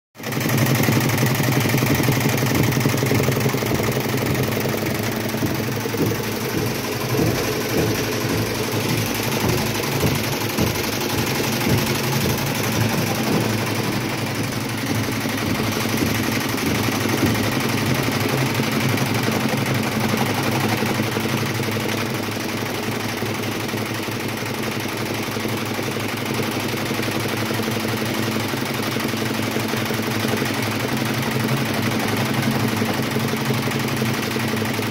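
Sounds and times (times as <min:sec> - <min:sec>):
rapid clatter: 0:00.2 - 0:34.9
machinery electric hum: 0:00.6 - 0:22.0.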